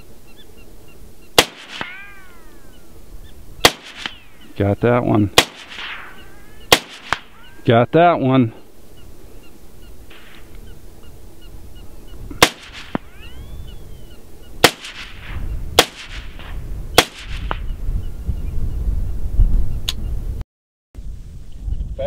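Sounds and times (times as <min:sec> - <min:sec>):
wind rumbling on microphone: 0:00.9 - 0:20.4, 0:21.0 - 0:22.0
rifle shots with echo: 0:01.4 - 0:02.5, 0:03.6 - 0:04.5, 0:05.2 - 0:07.6, 0:12.4 - 0:13.2, 0:14.6 - 0:17.6.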